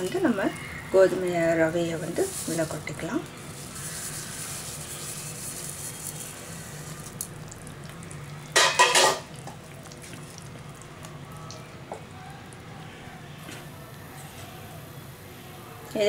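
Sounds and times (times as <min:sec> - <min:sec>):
grains pouring into boiling water: 0:01.6 - 0:11.0
wooden spatula scraping: 0:01.9 - 0:07.1
metal dishes clattering: 0:08.5 - 0:09.3.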